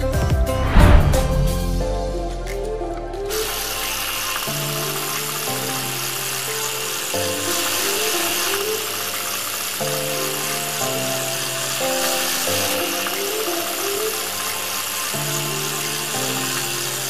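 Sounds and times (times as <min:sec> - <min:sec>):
food deep-frying in oil: 0:03.5 - 0:17.0.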